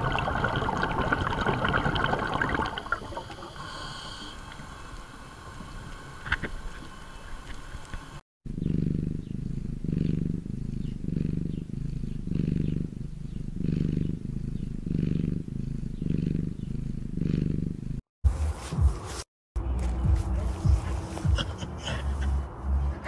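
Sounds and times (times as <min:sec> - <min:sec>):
underwater ambience: 0:00.0 - 0:08.2
cat purring: 0:08.5 - 0:18.0.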